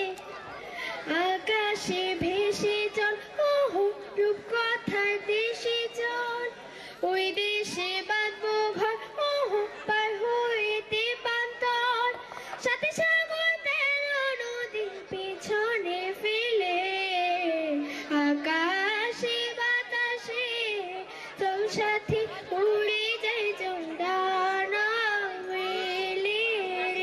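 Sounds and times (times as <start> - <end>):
girl singing into microphone: 0.0 - 0.2, 0.8 - 27.0.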